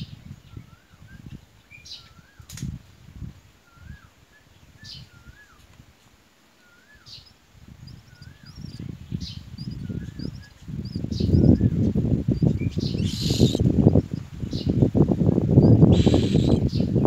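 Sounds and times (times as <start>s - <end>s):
faint bird chirps: 6.5s - 14.8s, 15.6s - 17.0s
warbling bird call: 12.6s - 13.8s, 15.7s - 16.9s.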